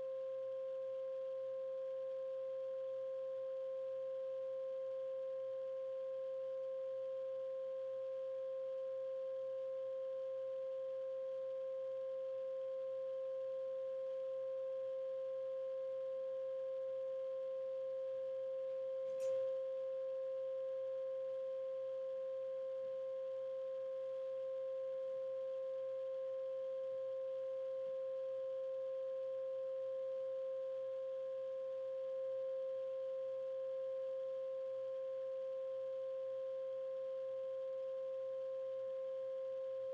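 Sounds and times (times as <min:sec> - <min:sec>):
steady sine tone: 0:00.0 - 0:39.9
brief click: 0:19.0 - 0:19.5.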